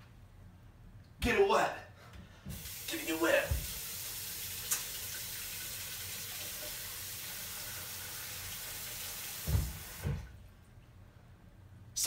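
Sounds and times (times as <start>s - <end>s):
tap water running: 2.5s - 10.4s.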